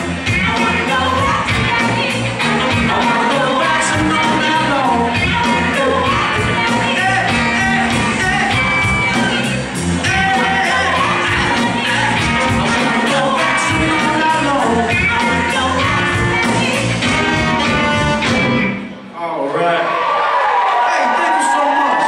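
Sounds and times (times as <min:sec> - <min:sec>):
person singing: 0:00.0 - 0:18.7
funk band playing: 0:00.0 - 0:19.2.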